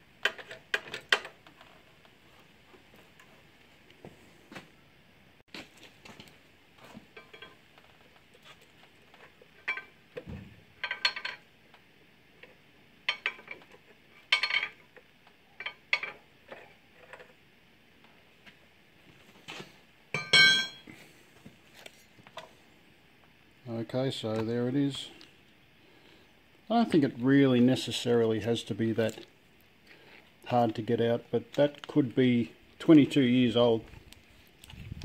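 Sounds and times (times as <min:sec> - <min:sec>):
metal clinks and knocks: 0:07.1 - 0:07.6, 0:09.2 - 0:10.0, 0:10.8 - 0:11.4, 0:20.2 - 0:20.9.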